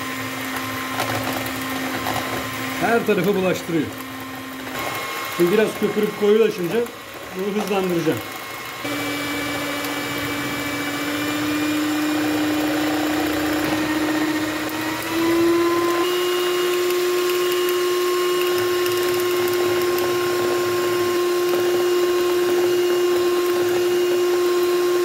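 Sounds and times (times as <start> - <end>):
electric hand mixer running: 0.0 - 25.0.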